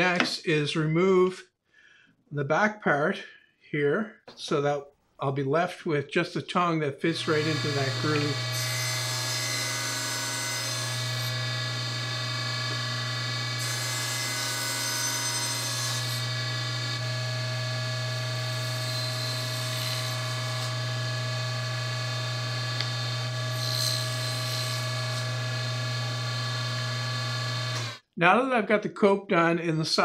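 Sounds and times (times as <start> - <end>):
saw cutting wood: 7.1 - 28.0
table saw running: 7.2 - 28.0.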